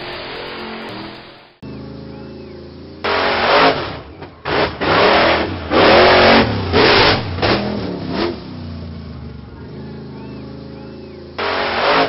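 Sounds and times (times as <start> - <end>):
truck engine revving: 0.0 - 12.0.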